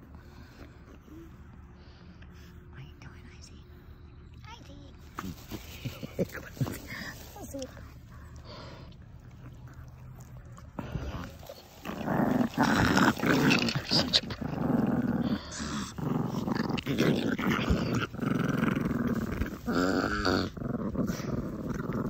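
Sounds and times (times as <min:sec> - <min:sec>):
dogs play-growling: 0:05.0 - 0:22.0.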